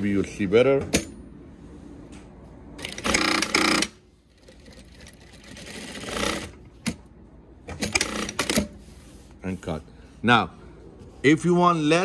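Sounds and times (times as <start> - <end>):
sewing machine stitching: 2.8 - 6.6.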